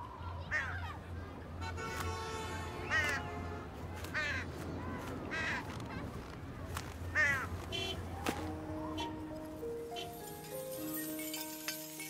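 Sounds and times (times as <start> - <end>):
crows cawing: 2.8 - 3.4, 4.1 - 6.3, 7.1 - 8.0
soft musical notes: 8.0 - 12.0.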